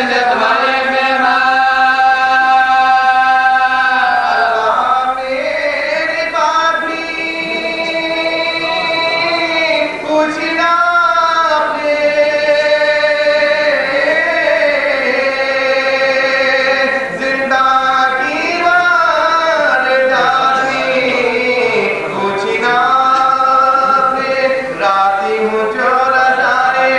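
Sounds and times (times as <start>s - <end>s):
man chanting elegy: 0.0s - 26.9s.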